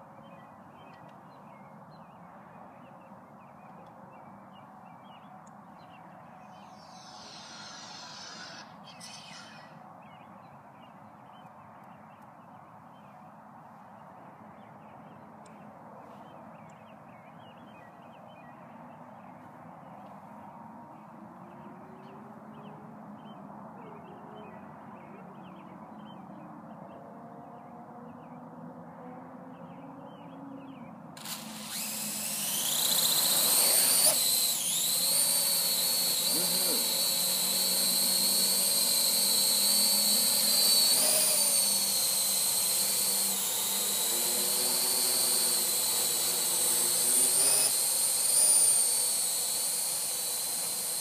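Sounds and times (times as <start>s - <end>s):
drone propellers whining: 6.6s - 9.8s, 31.2s - 51.0s
small chirps: 6.6s - 9.8s, 31.2s - 51.0s.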